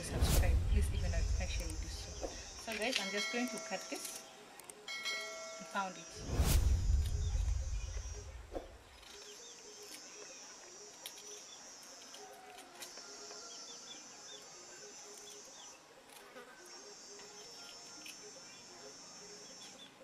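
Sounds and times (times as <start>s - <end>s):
low rumble: 0.0s - 2.7s, 6.2s - 8.8s
insects trilling: 0.0s - 20.0s
small birds chirping: 0.1s - 15.8s, 16.6s - 20.0s.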